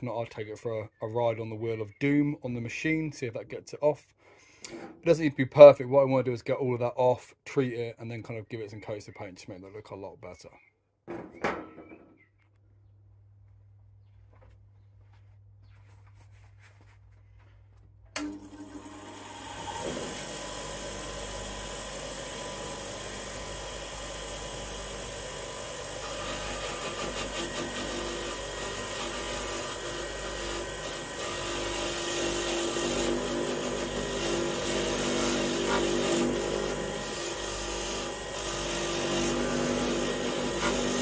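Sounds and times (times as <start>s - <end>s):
bench grinder motor running: 18.2s - 41.0s.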